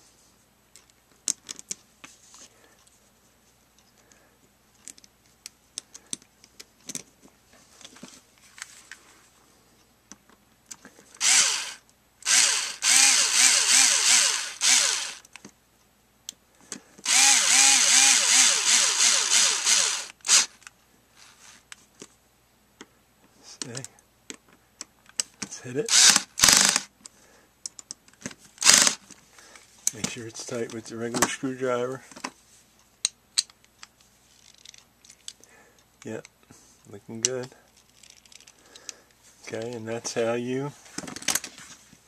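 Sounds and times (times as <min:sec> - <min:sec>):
small parts clicking: 0:10.7 - 0:15.5, 0:17.0 - 0:20.7, 0:25.9 - 0:26.9, 0:28.6 - 0:29.1, 0:33.0 - 0:36.3, 0:37.7 - 0:39.0
cordless drill motor running: 0:11.2 - 0:15.2, 0:17.0 - 0:20.6, 0:25.9 - 0:26.9, 0:28.6 - 0:29.0.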